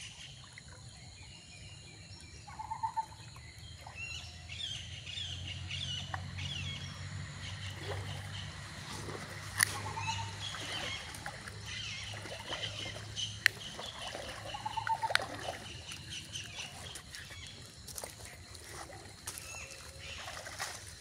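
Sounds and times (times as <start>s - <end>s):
water splashing and sloshing: 0.0s - 21.0s
birds chirping: 1.0s - 21.0s
sharp splashes: 5.1s - 21.0s.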